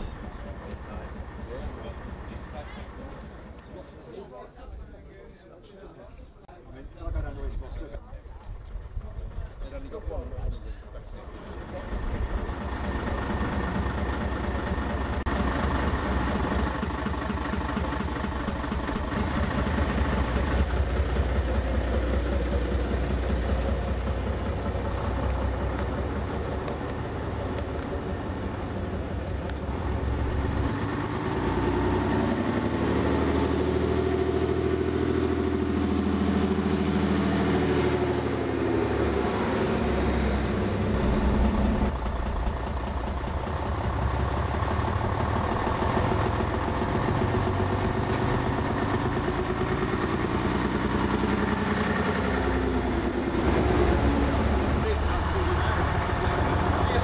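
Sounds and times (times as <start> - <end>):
bus diesel engine revving: 11.4 - 57.0.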